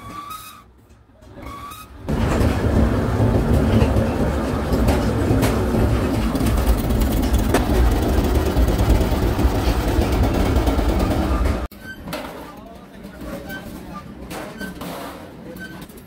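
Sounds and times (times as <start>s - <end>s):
hydraulic pump rumbling: 1.3s - 11.7s.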